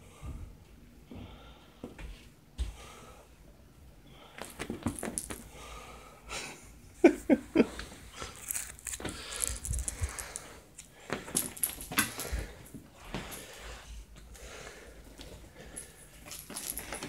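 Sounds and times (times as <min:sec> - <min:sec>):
handling rustle: 0:08.2 - 0:10.6.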